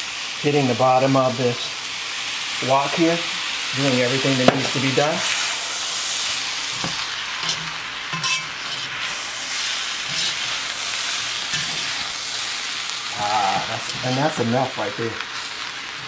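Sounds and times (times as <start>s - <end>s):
fried rice sizzling in wok: 0.0s - 16.0s
spatula scraping pan: 4.6s - 12.6s, 13.6s - 14.6s.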